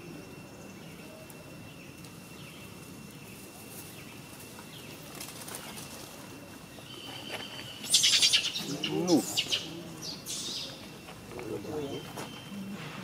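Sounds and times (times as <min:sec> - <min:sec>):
high insect tone: 0:00.0 - 0:13.0
steady hiss: 0:00.0 - 0:13.0.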